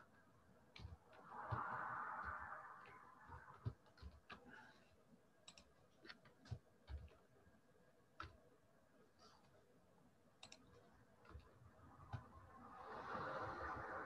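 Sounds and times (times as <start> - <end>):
keyboard and mouse clicks: 5.4 - 7.2, 8.2 - 8.4, 10.4 - 12.4.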